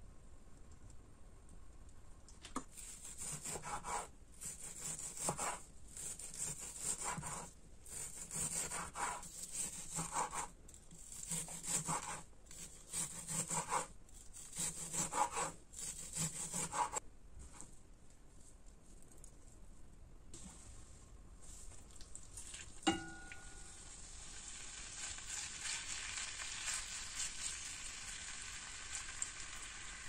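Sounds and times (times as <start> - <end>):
knife cutting on wooden board: 2.8 - 10.5, 11.1 - 17.0.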